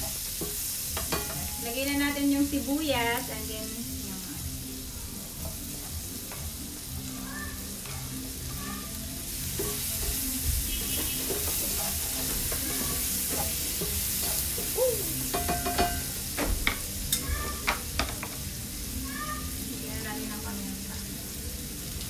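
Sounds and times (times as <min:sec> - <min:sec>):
onions sizzling in frying pan: 0:00.0 - 0:22.0
spatula scraping pan: 0:09.5 - 0:14.8
utensils knocking on cutting board: 0:15.3 - 0:18.4.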